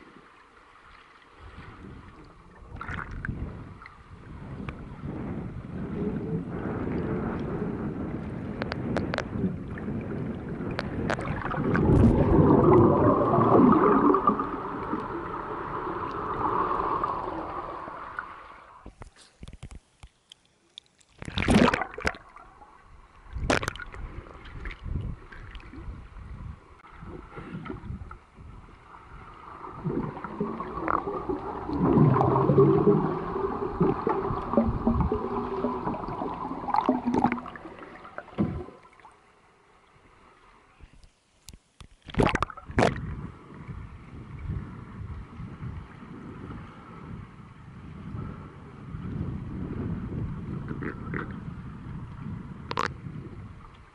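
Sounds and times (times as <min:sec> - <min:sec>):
muffled underwater water churning: 0:00.0 - 0:19.3, 0:21.1 - 0:40.9, 0:42.0 - 0:53.9
underwater knocks and splashes: 0:01.5 - 0:19.8, 0:21.2 - 0:22.5, 0:23.3 - 0:26.0, 0:29.2 - 0:39.1, 0:41.8 - 0:43.8, 0:49.0 - 0:53.0.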